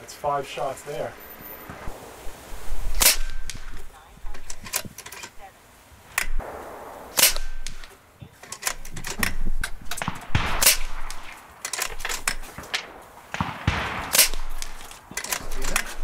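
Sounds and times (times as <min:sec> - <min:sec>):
air rifle shots: 0:01.6 - 0:04.9, 0:06.1 - 0:16.0
rifle action clicks: 0:03.0 - 0:05.4, 0:06.1 - 0:16.0.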